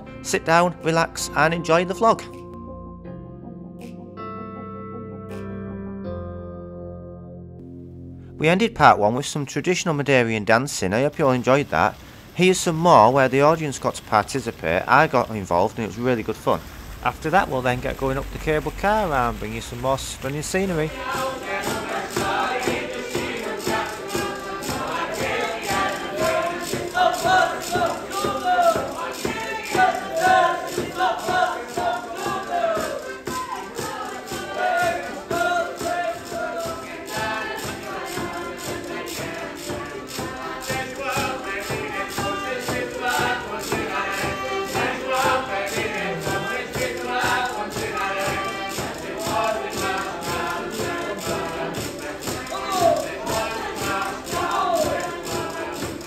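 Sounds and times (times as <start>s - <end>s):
group of voices singing: 17.1s - 56.0s
quick steady percussion beat: 17.1s - 56.0s
strummed strings: 17.1s - 56.0s.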